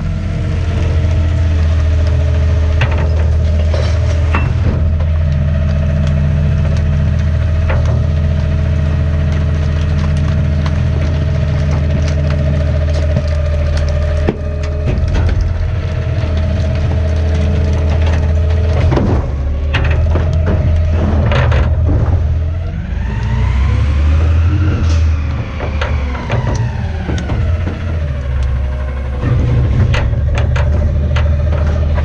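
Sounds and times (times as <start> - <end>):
garbage truck engine whining: 0.0 - 32.0
trash crunching in compactor: 0.0 - 32.0.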